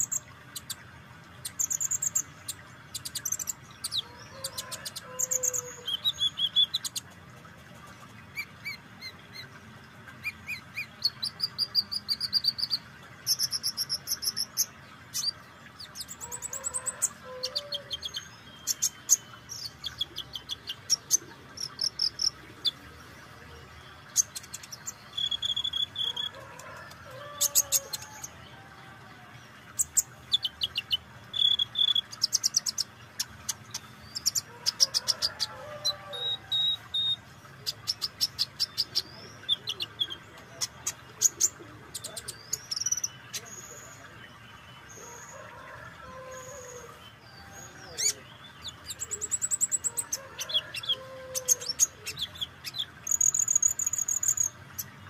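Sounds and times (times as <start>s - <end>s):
bird chips and trills: 0.0s - 7.2s, 24.0s - 28.4s, 29.7s - 45.2s, 48.0s - 55.0s.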